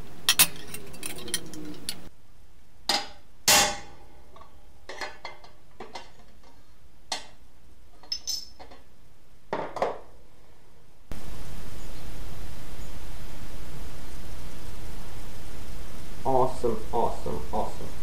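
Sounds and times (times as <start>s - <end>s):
hammer striking sheet metal: 2.9s - 4.0s
steady hiss: 11.1s - 18.0s.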